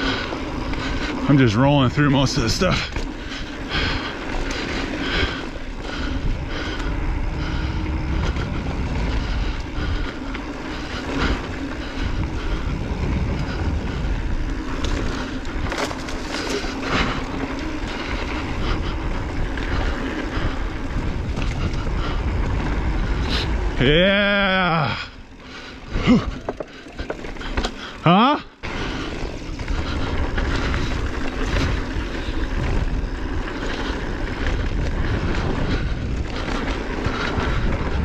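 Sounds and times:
bike rattling and knocking: 0:00.0 - 0:24.8, 0:25.4 - 0:38.0
bike tyres rolling over dirt: 0:00.0 - 0:38.0
wind on microphone: 0:05.9 - 0:15.8, 0:16.9 - 0:24.6, 0:29.4 - 0:38.0.

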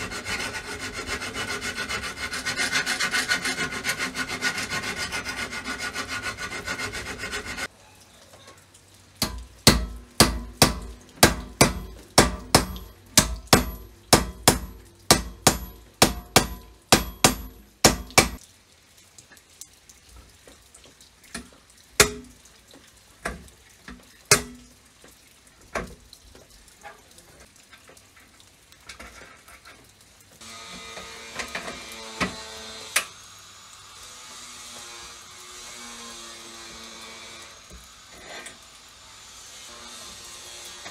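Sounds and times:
rasping filing: 0:00.0 - 0:07.7.

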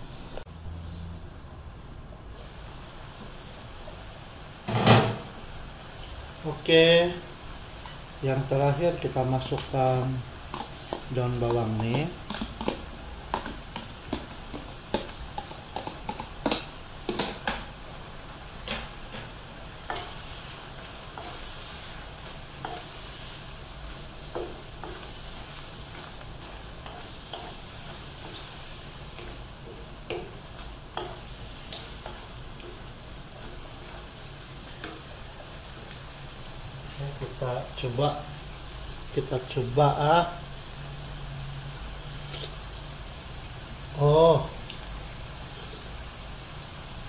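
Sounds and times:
food sizzling in wok: 0:00.0 - 0:47.0
wooden spatula knocking on wok: 0:10.5 - 0:17.6.

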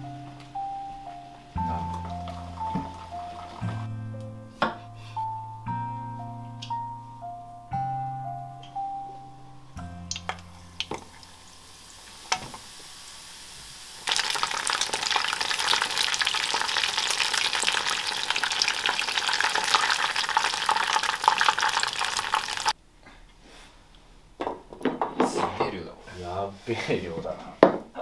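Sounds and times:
deep-frying crackling sizzle: 0:01.1 - 0:03.8, 0:09.8 - 0:22.8.

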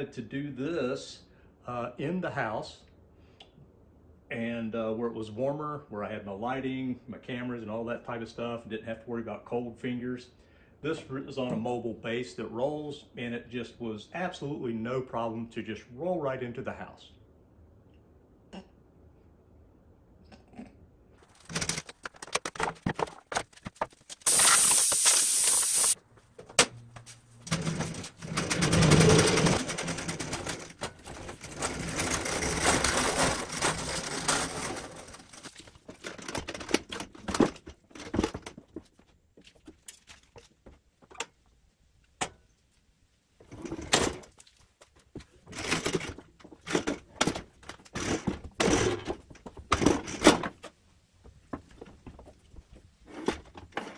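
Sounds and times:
loud hiss: 0:24.2 - 0:26.0
clunks and knocks: 0:45.2 - 0:53.9.

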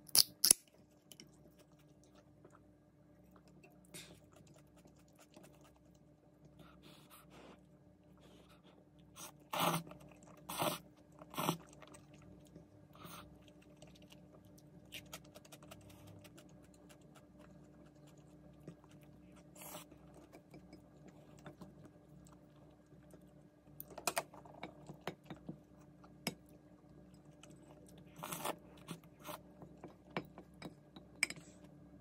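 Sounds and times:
chewing: 0:01.2 - 0:06.8, 0:08.6 - 0:30.6
slurping noodles: 0:09.2 - 0:12.0.

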